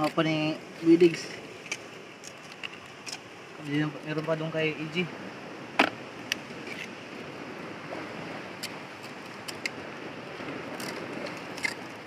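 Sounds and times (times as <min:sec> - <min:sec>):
sea surf against rocks: 0:00.0 - 0:12.0.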